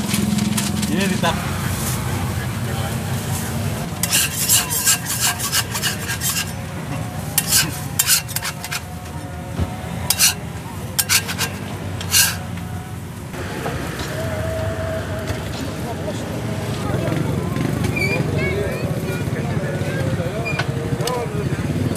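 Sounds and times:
metal spatula scraping griddle: 3.8 - 9.1, 10.0 - 12.6.

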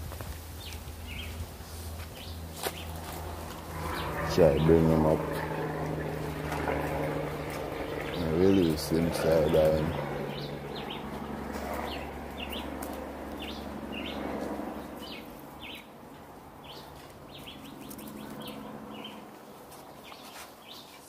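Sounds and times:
birds chirping: 0.6 - 21.0
low rumble: 1.1 - 8.3.

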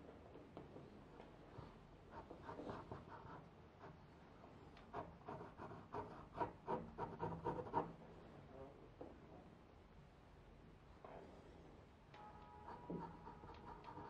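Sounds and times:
pencil scratching on paper: 2.1 - 4.0, 4.8 - 8.0, 12.6 - 14.0.

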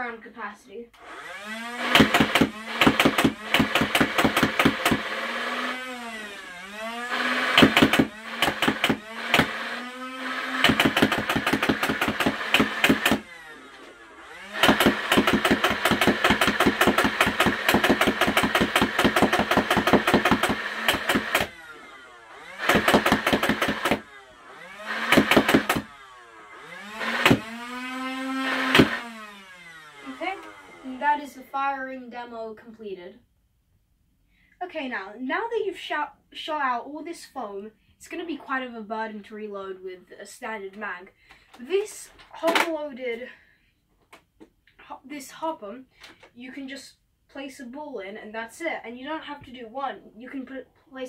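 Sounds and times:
flywheel motors whining: 1.0 - 31.2
toy blaster firing rapid bursts: 1.1 - 30.9.

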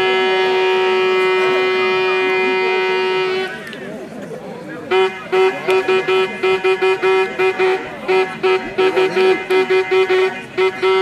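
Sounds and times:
horn tooting: 0.0 - 3.8, 4.9 - 11.0.

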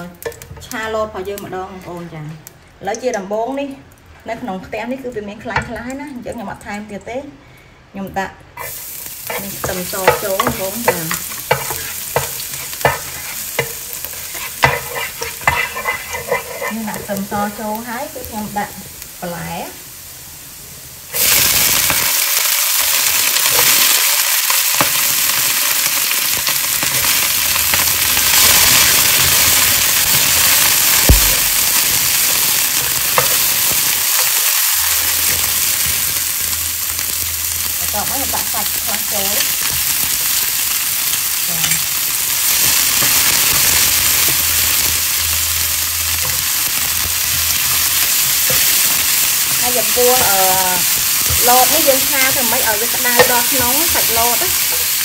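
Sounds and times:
greens sizzling in hot oil: 0.0 - 2.1, 8.1 - 55.0
spatula stirring in pan: 8.6 - 17.6, 24.8 - 36.5, 46.2 - 55.0.

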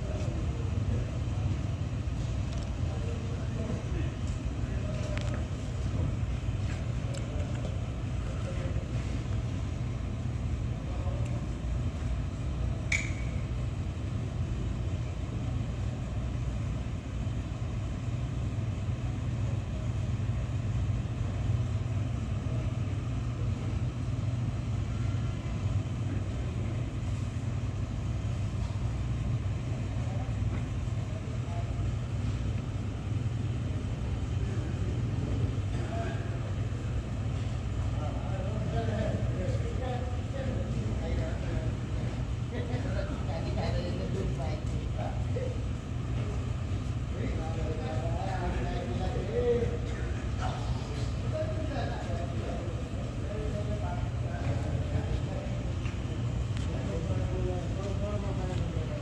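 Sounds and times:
sharp click: 12.9 - 13.4.

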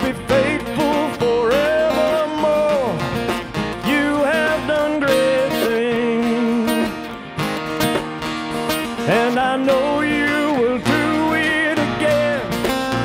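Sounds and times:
live rock band playing: 0.0 - 13.0.

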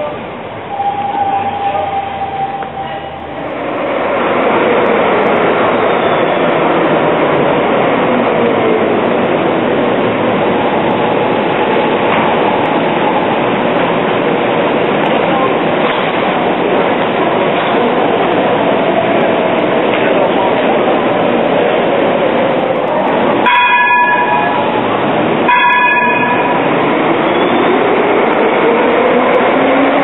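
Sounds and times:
tram rumble echoing in tunnel: 0.0 - 30.0.

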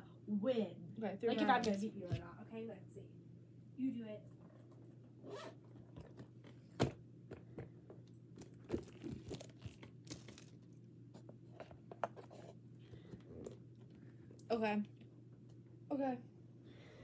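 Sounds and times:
case handling clicks and crinkles: 8.4 - 10.6.

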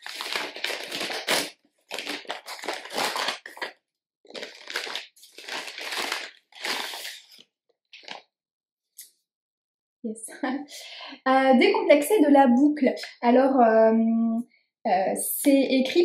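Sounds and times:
paper envelope tearing: 0.0 - 8.2.

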